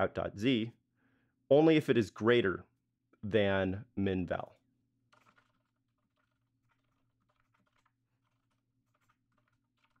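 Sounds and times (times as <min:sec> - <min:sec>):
faint keyboard typing: 0:05.1 - 0:10.0.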